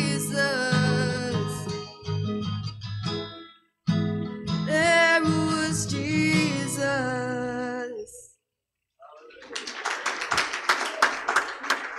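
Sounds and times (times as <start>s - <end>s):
acoustic guitar strumming chords: 0.0s - 8.2s.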